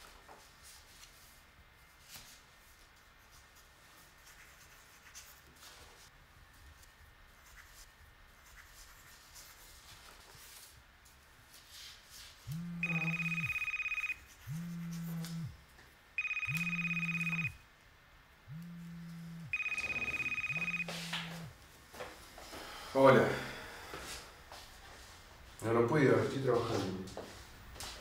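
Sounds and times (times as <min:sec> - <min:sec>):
phone ringing: 0:12.5 - 0:15.5, 0:16.2 - 0:17.6, 0:18.5 - 0:21.6
phone vibrating buzz: 0:12.5 - 0:15.6, 0:16.2 - 0:17.6, 0:18.5 - 0:21.6
pen scratching on paper: 0:13.6 - 0:15.3.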